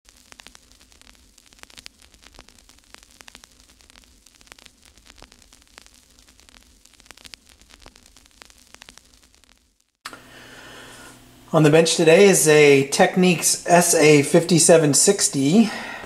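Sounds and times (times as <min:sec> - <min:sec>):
sharp clicks and pops: 0:00.1 - 0:10.2
static hiss and hum: 0:00.1 - 0:16.0.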